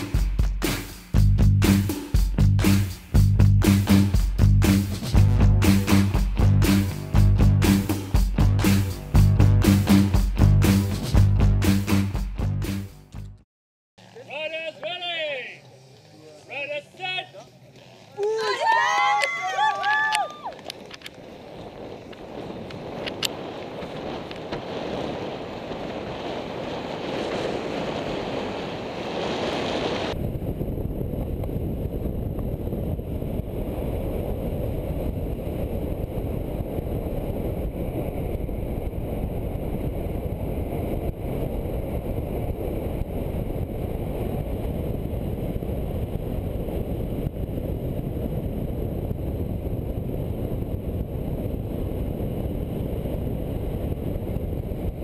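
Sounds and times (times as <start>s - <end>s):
skate wheels rumbling on asphalt: 14.0s - 55.0s
wind rushing: 18.6s - 55.0s.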